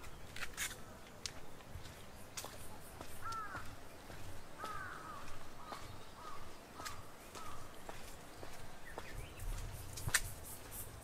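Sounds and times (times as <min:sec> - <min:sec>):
crows cawing: 0:03.2 - 0:03.8, 0:04.6 - 0:07.7.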